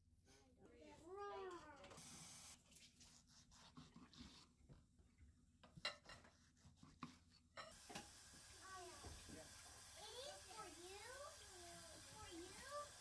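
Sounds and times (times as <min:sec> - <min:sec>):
knife slicing tomato: 0:02.8 - 0:04.6, 0:06.2 - 0:07.5.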